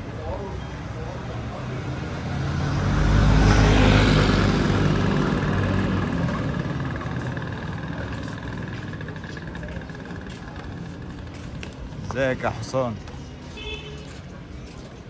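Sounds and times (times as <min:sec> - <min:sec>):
motor scooter passing: 0:01.6 - 0:12.6.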